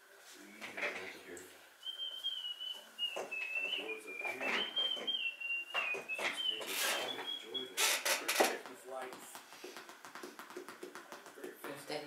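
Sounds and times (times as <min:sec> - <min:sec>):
faint voices: 0:00.0 - 0:05.2, 0:05.8 - 0:09.3.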